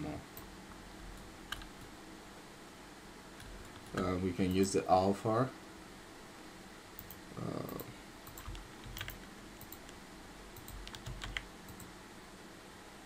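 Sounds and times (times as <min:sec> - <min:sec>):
mouse and keyboard clicks: 0:07.0 - 0:10.0, 0:10.6 - 0:11.9.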